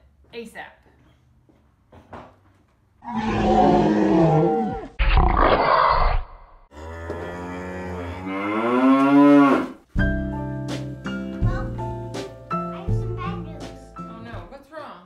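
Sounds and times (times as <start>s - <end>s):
monster roars: 3.0s - 9.7s.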